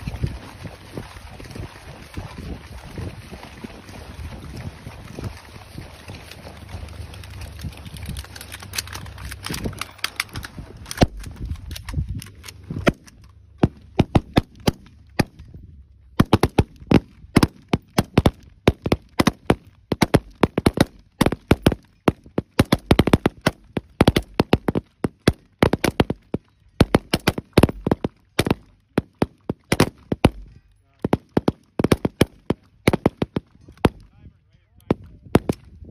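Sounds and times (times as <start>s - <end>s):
wind on microphone: 0.0s - 13.0s, 32.9s - 35.9s
rifles firing shots: 12.3s - 15.4s, 16.2s - 34.0s, 34.9s - 35.7s.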